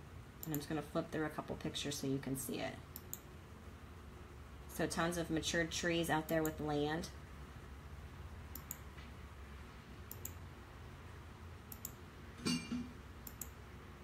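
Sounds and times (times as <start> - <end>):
low room hum: 0.0 - 14.0
computer mouse clicking: 0.4 - 0.7, 3.0 - 3.2, 8.5 - 8.8, 10.1 - 10.4, 11.7 - 12.0, 13.2 - 13.6.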